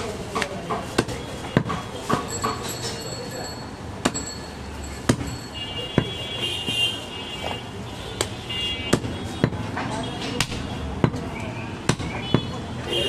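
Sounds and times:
knife chopping meat and bone: 0.3 - 2.6, 5.1 - 5.4, 8.2 - 11.2, 11.8 - 12.6.

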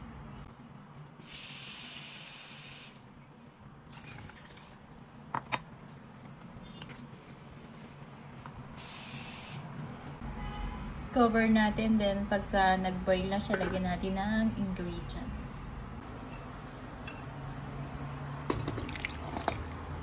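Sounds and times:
water poured into a pot: 3.9 - 4.8, 16.0 - 20.0.

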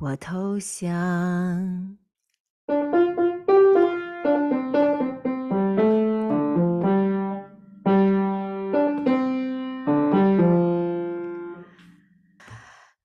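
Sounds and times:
piano melody over chords: 2.7 - 11.8.

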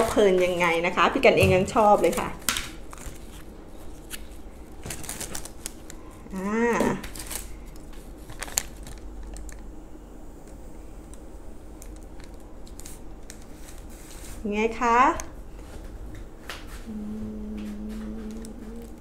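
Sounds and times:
short wordless voice sound: 16.9 - 19.0.

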